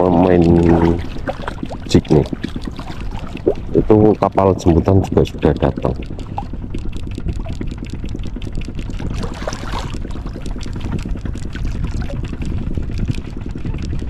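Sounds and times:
rush of splashing water: 0:00.0 - 0:04.2, 0:09.0 - 0:10.9
water sloshing: 0:00.0 - 0:13.6
boat engine idling: 0:00.0 - 0:14.0.

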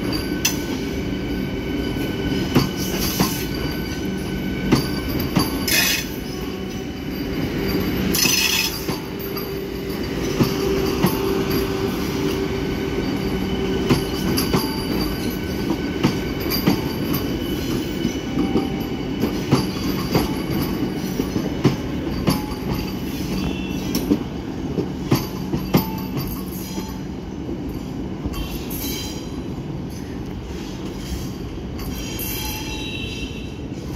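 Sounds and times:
train hum: 0:00.0 - 0:33.9
train wheels clacking over rail joints: 0:02.4 - 0:06.6, 0:07.3 - 0:26.9.

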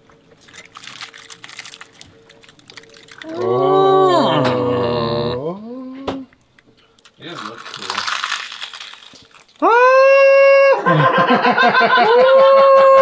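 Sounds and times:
crackly noise: 0:00.0 - 0:03.8, 0:06.3 - 0:09.7.

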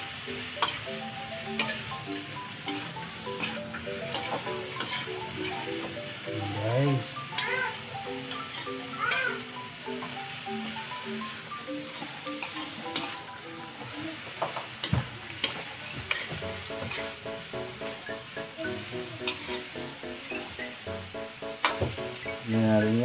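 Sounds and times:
vegetables sizzling in oil: 0:00.0 - 0:23.0
spatula scraping a wok: 0:00.4 - 0:00.9, 0:01.5 - 0:06.0, 0:07.3 - 0:10.8, 0:11.8 - 0:18.2, 0:18.8 - 0:20.8.

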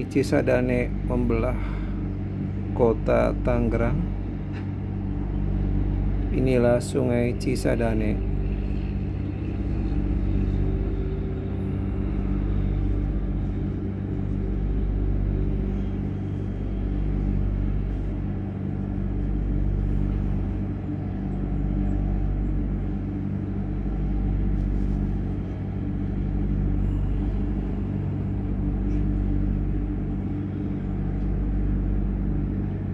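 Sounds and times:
low mechanical hum: 0:00.0 - 0:32.9.

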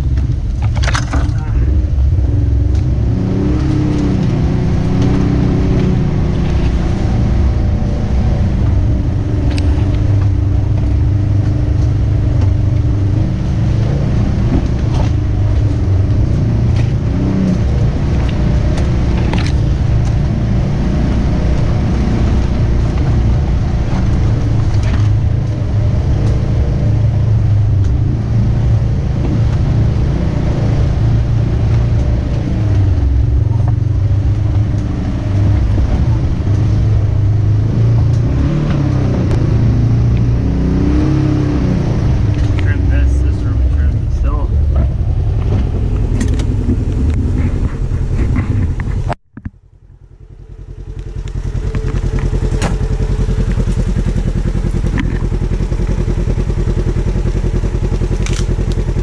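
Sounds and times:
vehicle engine running: 0:00.0 - 0:59.0
sharp clicks: 0:58.2 - 0:58.8.

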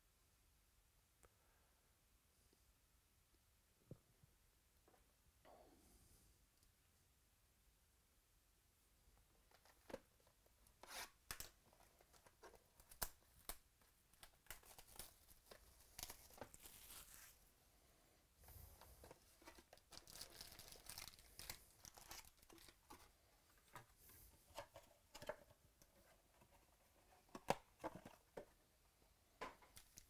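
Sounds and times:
plastic wrap tearing: 0:15.9 - 0:17.4, 0:19.8 - 0:22.7
foil packs crinkling: 0:19.7 - 0:22.8.

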